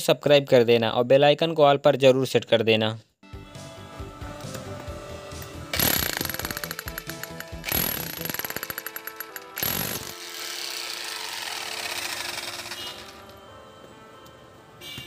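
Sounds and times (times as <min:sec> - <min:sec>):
demolition hammer breaking brick: 0:05.8 - 0:10.2.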